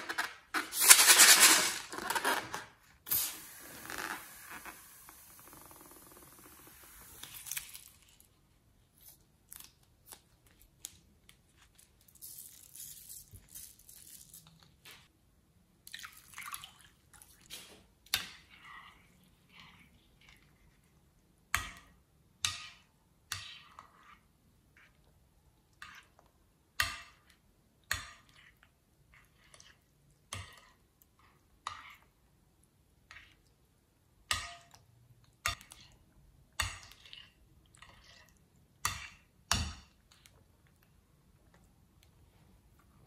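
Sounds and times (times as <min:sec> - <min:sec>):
spoon stirring in a bowl: 0:18.1 - 0:32.2, 0:34.3 - 0:40.8.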